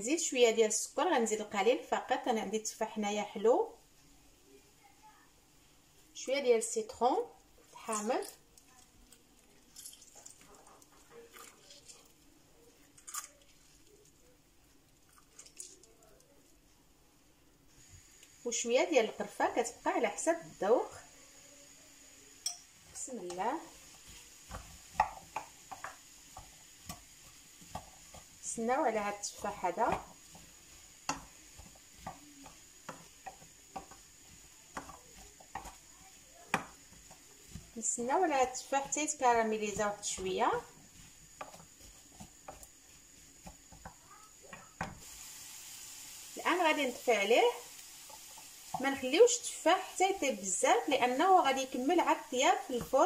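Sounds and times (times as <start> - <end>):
wooden spatula scraping frying pan: 22.8 - 45.2, 48.0 - 53.0.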